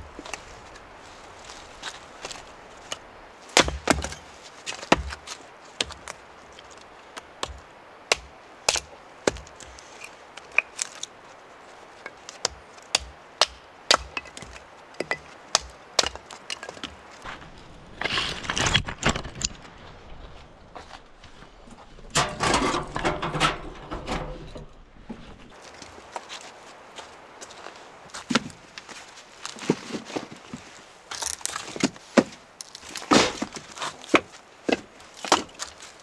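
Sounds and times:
wood cracking: 1.5 - 11.2, 12.0 - 19.8, 31.1 - 36.0
rustling: 25.1 - 36.0.

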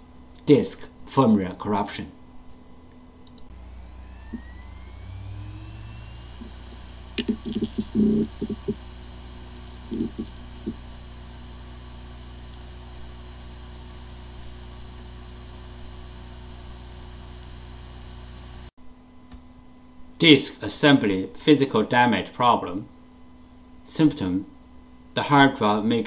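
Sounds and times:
hard drive spinning hum: 0.0 - 20.1
hard drive whine spinning up: 2.2 - 18.7
hard drive clicks and knocks: 6.7 - 8.8, 9.5 - 10.8.

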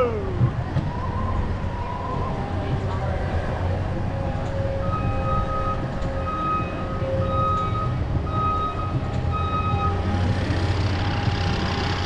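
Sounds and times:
loader engine running: 2.9 - 12.0.

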